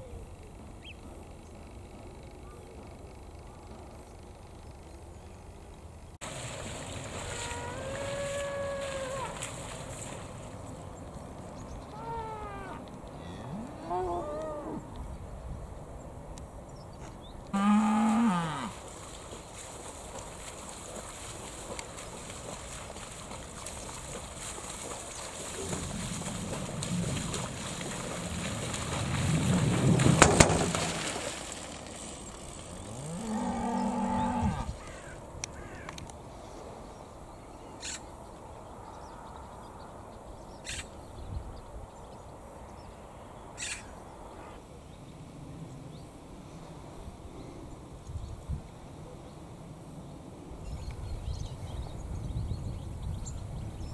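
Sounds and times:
cow mooing: 11.9s - 14.8s, 17.6s - 18.8s, 32.8s - 34.7s.

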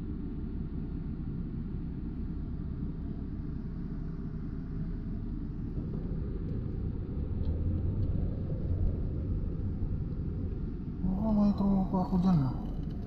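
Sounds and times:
car engine and tyres rumbling: 4.4s - 13.0s.

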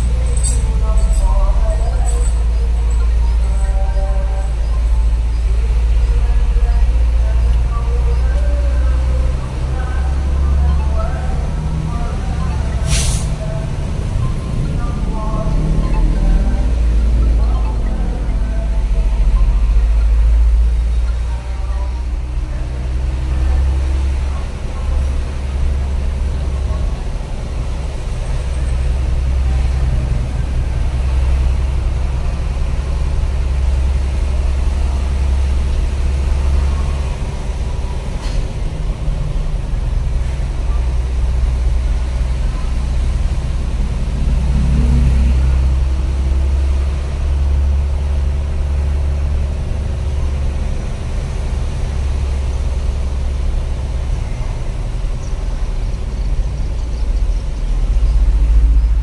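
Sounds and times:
road noise: 0.0s - 59.0s
truck engine droning: 0.0s - 59.0s.

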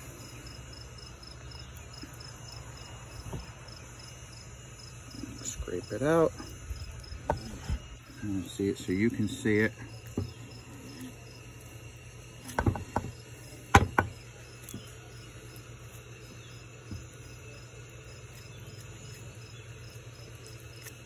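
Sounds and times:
avocado tool scraping: 6.3s - 15.0s.

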